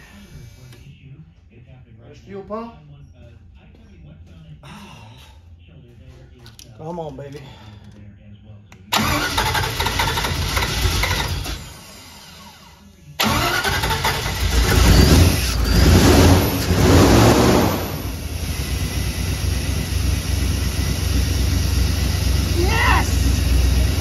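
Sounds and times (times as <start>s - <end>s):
engine starting revving and idling: 8.9s - 24.0s.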